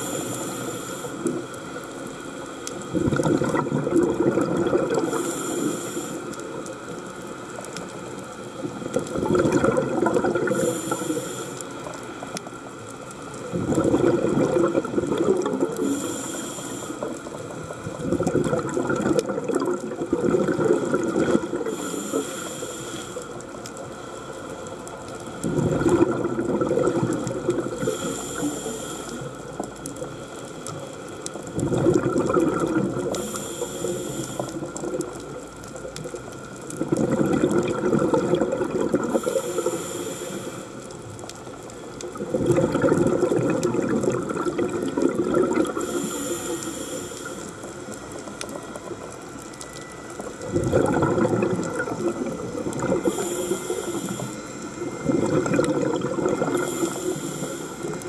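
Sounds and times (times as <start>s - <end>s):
regulator inhalation hiss: 0.0s - 1.8s, 5.0s - 6.6s, 10.5s - 11.9s, 15.8s - 17.2s, 21.6s - 23.4s, 27.8s - 29.4s, 33.2s - 34.8s, 39.1s - 40.8s, 45.8s - 47.6s, 53.0s - 54.8s, 56.5s - 58.0s
exhaled bubbles rumbling: 2.7s - 16.2s, 17.0s - 22.2s, 24.5s - 39.8s, 40.8s - 46.6s, 47.2s - 58.0s.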